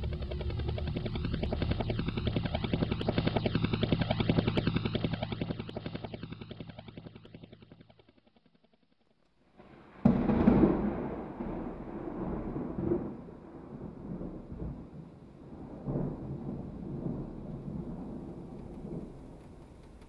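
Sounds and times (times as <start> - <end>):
throbbing pulse with phasing: 0.0 - 8.7.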